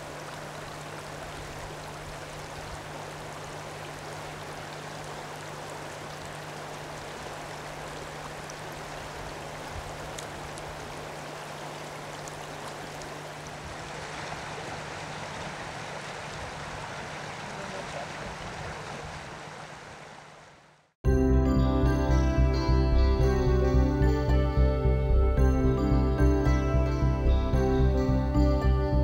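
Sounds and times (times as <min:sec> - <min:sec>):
river rushing over stones: 0:00.0 - 0:20.7.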